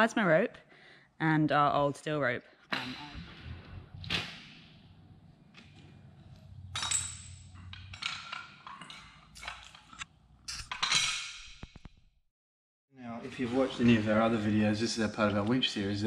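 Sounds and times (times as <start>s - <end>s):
metal cable and tools clinking: 5.6s - 11.7s.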